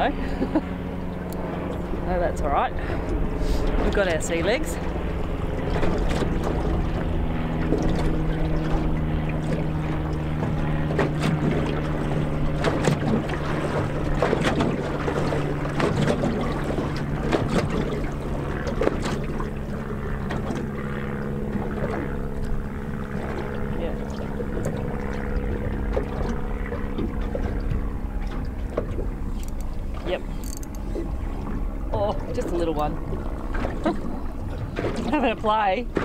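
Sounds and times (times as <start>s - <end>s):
low engine hum: 0.0s - 36.0s
water slapping against hull: 0.0s - 36.0s.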